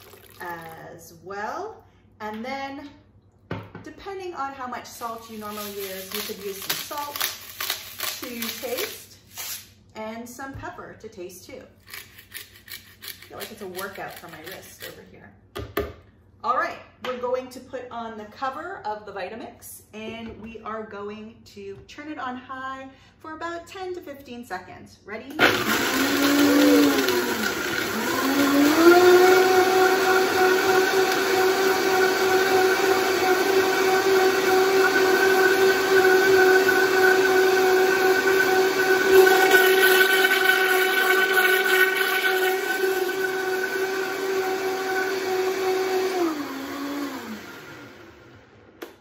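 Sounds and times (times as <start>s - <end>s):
blender motor whine: 25.4s - 48.6s.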